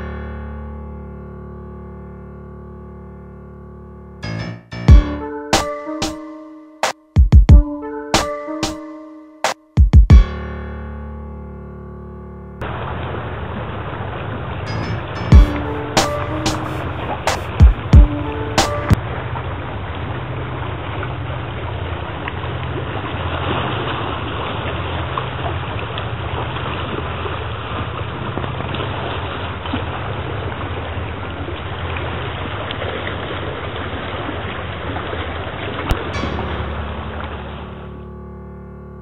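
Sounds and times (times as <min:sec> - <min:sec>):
waves lapping against rocks: 0:19.1 - 0:36.1
low rumble: 0:35.9 - 0:39.0.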